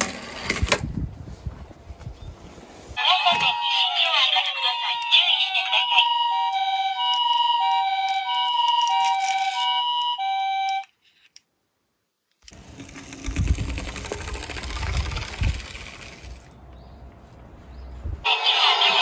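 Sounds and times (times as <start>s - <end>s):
two-tone siren: 3.0s - 10.9s
low rumbling noise: 12.5s - 19.0s.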